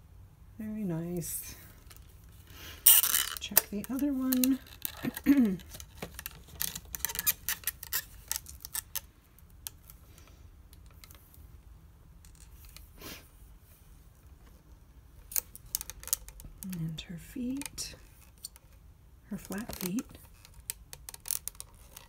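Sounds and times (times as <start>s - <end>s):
doll joints clicking and scraping: 1.8s - 11.4s, 15.2s - 22.0s.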